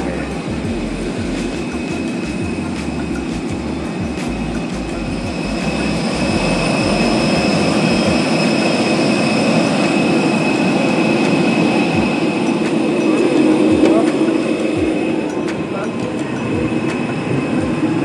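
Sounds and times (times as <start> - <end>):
jet airliner rush and whine: 0.0 - 18.0.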